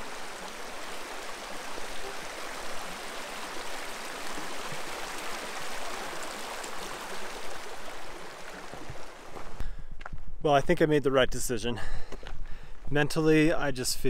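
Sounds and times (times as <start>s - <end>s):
stream rushing over stones: 0.0s - 9.6s.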